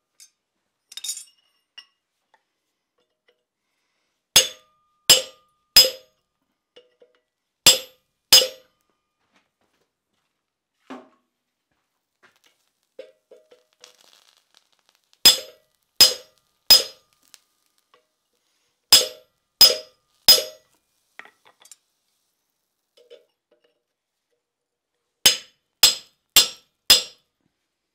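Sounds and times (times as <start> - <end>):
light metal clinks: 0.1 - 2.0
hammer striking chisel on anvil: 4.4 - 6.1, 7.7 - 8.8, 15.3 - 17.0, 18.9 - 20.7, 25.3 - 27.2.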